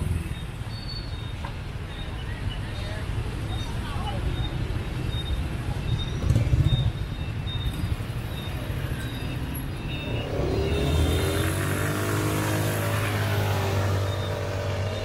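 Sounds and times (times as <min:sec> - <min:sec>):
motorbike traffic engine hum: 0:00.0 - 0:15.0
road noise: 0:00.0 - 0:15.0
motorbike engine accelerating: 0:06.2 - 0:07.0, 0:10.1 - 0:15.0.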